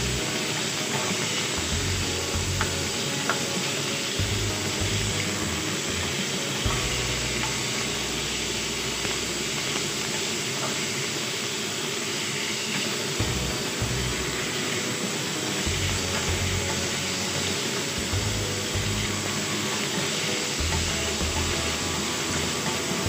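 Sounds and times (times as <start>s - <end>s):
meat sizzling in wok: 0.0s - 23.0s.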